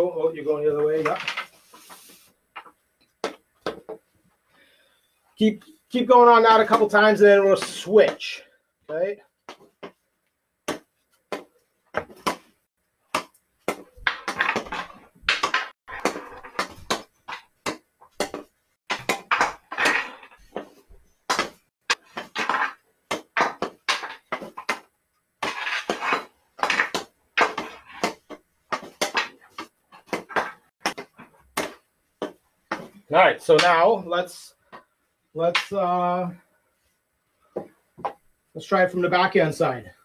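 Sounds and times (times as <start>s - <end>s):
hockey stick tapping a ball: 13.1s - 32.9s
stick blade brushing carpet: 25.4s - 28.2s.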